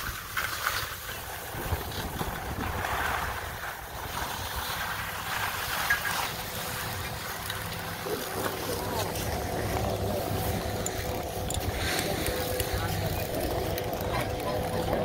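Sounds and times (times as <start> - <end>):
skis sliding over snow: 0.0 - 15.0
wind on microphone: 1.1 - 5.7.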